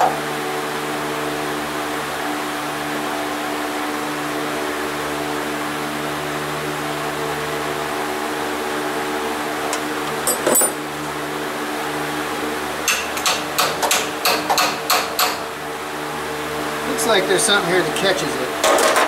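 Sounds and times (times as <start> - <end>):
mechanical hum: 0.0 - 19.0
sharp tool clicks: 12.9 - 15.4.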